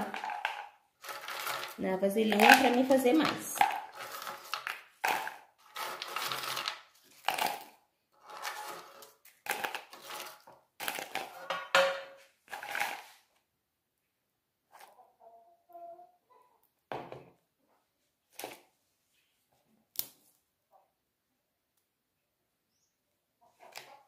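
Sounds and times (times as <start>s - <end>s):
biscuits rustling and clattering: 0.0s - 13.5s, 17.0s - 20.6s.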